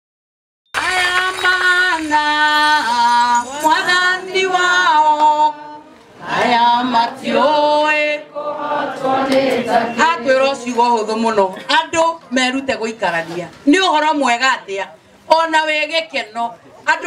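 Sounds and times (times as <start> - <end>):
woman singing: 0.8 - 8.3.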